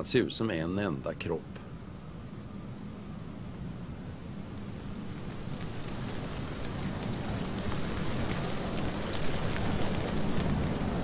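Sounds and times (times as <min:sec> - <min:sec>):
wind blowing through trees: 0:00.0 - 0:11.0
light ticks: 0:05.3 - 0:10.6.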